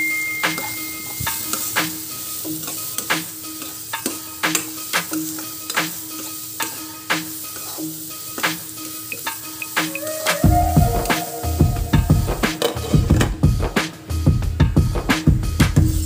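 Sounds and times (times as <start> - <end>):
vegetables sizzling in oil: 0.0 - 16.0
spatula scraping and tapping pan: 0.5 - 10.0.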